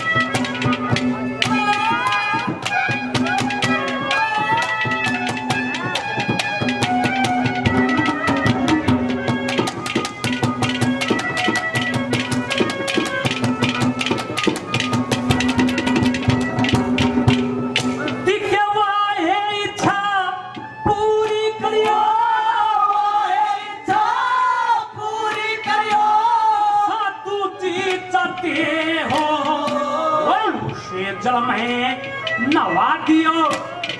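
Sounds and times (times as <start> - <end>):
fast hand drumming: 0.0 - 18.3
man singing: 18.2 - 24.0, 24.9 - 33.9.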